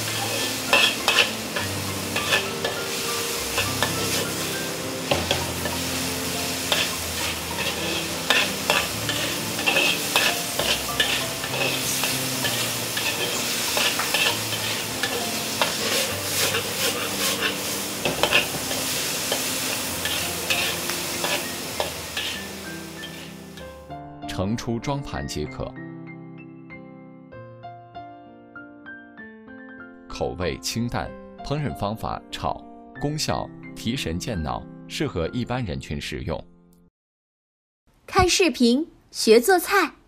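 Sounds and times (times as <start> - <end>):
metal spatula scraping a wok: 0.0 - 5.8, 6.6 - 23.6
oil sizzling in a wok: 0.0 - 23.9.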